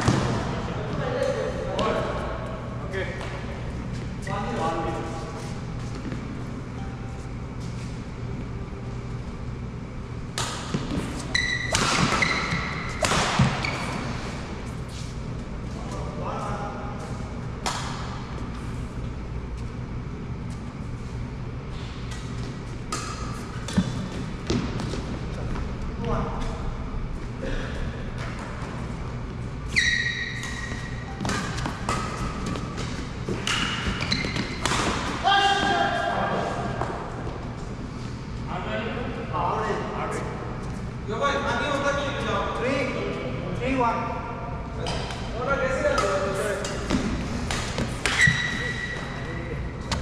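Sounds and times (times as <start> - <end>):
low steady hum: 0.0 - 50.0
racket striking shuttlecock: 10.3 - 13.6
racket hitting shuttlecock: 10.3 - 13.9, 30.4 - 35.2, 46.0 - 48.9
shoes squeaking on court: 10.7 - 16.0, 29.6 - 34.9, 46.8 - 50.0
shoe sole squeaking on court: 11.2 - 12.8, 29.7 - 31.0, 34.0 - 34.6.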